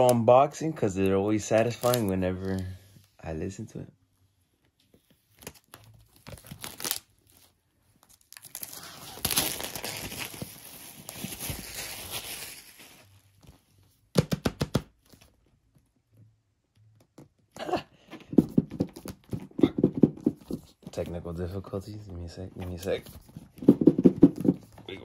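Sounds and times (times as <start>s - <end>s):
plastic shrink-wrap tearing: 1.5s - 2.6s, 6.0s - 13.1s.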